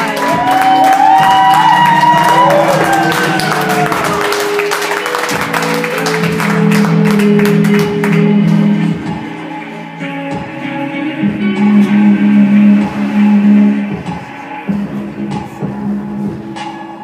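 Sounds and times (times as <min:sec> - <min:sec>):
audience whooping: 0:00.0 - 0:07.9
audience clapping and cheering: 0:00.0 - 0:08.9
performance music: 0:00.0 - 0:17.0.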